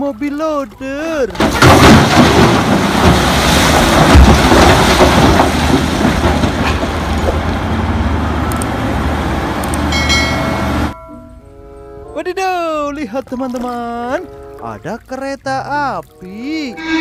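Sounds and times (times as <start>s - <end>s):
rock crashing into truck bed: 1.3s - 7.5s
diesel engines running: 1.3s - 11.0s.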